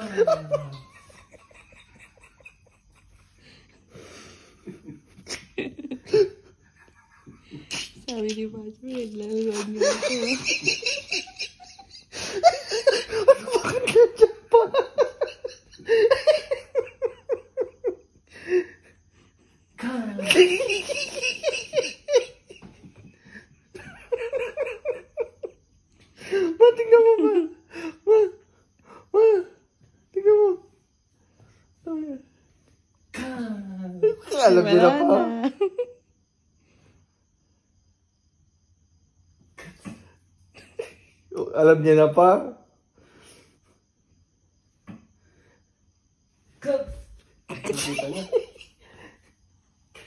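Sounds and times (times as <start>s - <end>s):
bursts of giggling: 0.0s - 3.4s, 9.4s - 17.9s, 47.5s - 49.0s
people laughing softly: 0.0s - 8.2s, 9.4s - 25.6s.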